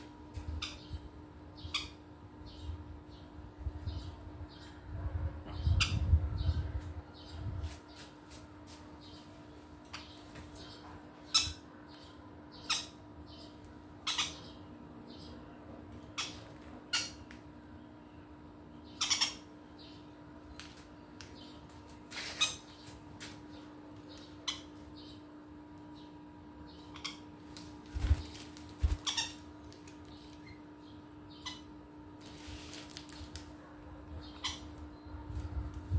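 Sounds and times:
steady low hum: 0.0 - 35.9
parrots squawking: 14.0 - 14.5, 19.0 - 19.5, 29.0 - 29.4.

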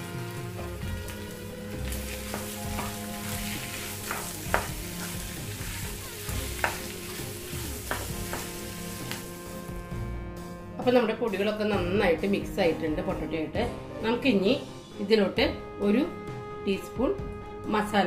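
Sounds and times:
light sizzle: 0.0 - 9.9
spatula mashing potato in pan: 2.2 - 9.3
spatula tapping pan: 2.3 - 5.3, 6.3 - 9.3.

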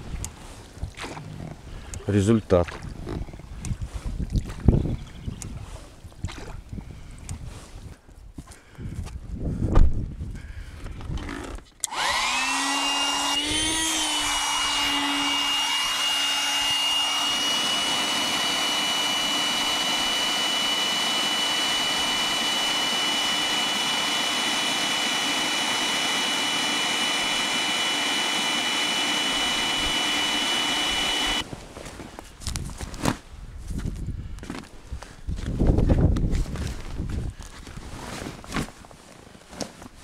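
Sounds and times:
motor whine: 11.3 - 31.4.

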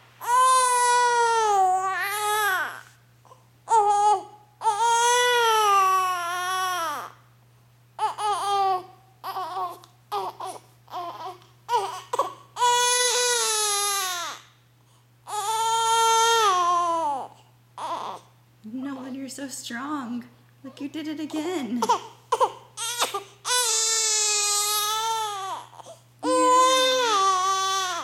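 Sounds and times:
baby crying: 0.2 - 2.9, 3.7 - 7.2, 8.0 - 14.4, 15.3 - 18.3, 21.8 - 28.0.

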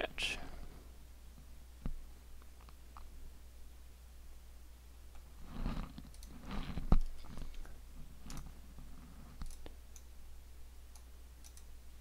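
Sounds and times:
low steady hum: 0.0 - 12.0
computer mouse clicks: 5.2 - 8.5, 9.3 - 10.1, 10.9 - 11.7.

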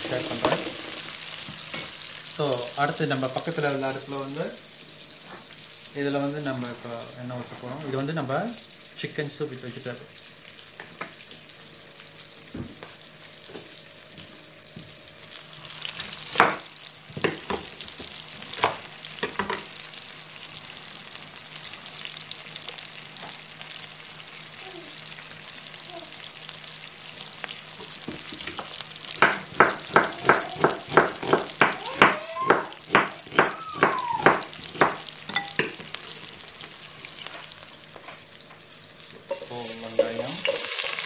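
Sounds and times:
onions sizzling in a pan: 0.0 - 41.0
knife chopping on wooden board: 29.2 - 35.0.

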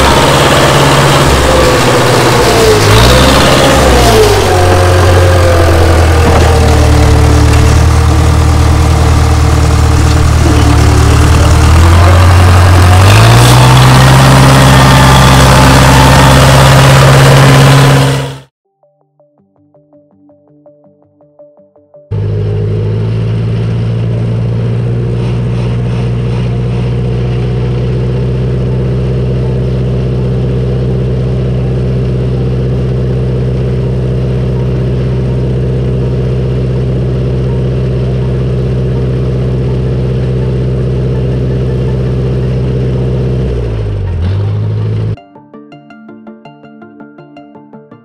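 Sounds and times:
bulldozer diesel engine running: 0.0 - 18.5, 22.1 - 45.2.

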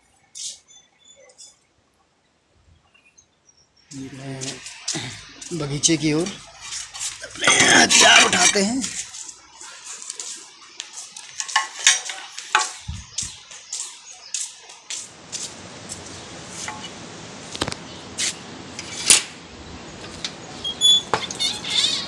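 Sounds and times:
hand tools clinking: 6.3 - 9.4, 10.0 - 13.3
gate squeaking: 20.6 - 22.0.

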